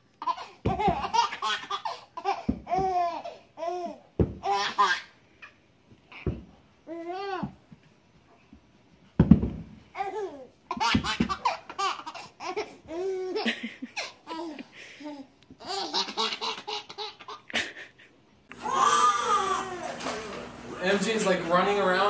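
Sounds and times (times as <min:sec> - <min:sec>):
baby laughing: 0:00.2 - 0:05.2, 0:10.0 - 0:18.0.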